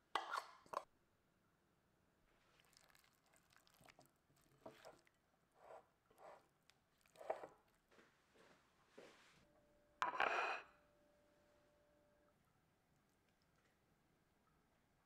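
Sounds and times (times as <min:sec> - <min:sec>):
wet squishes and rustles: 0:02.4 - 0:05.2.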